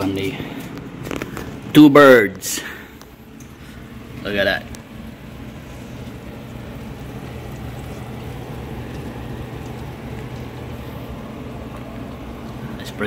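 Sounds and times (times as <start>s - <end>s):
low steady hum: 0.0s - 13.0s
fat sizzling in a roasting pan: 3.6s - 13.0s.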